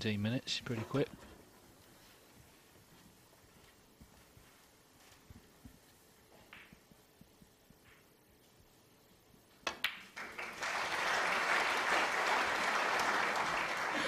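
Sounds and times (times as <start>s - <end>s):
snooker balls clicking: 5.7s - 8.2s, 9.6s - 10.4s
audience applauding: 10.2s - 14.0s.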